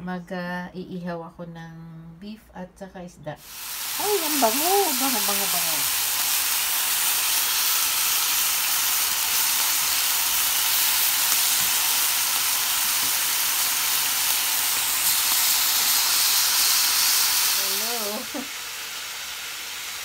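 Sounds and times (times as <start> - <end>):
beef sizzling in a frying pan: 3.4 - 20.0.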